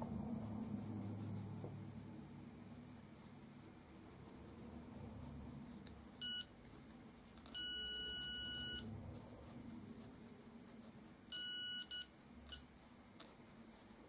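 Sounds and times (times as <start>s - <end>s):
wall scanner beeping: 6.2s - 6.6s, 7.5s - 8.9s, 11.3s - 12.7s.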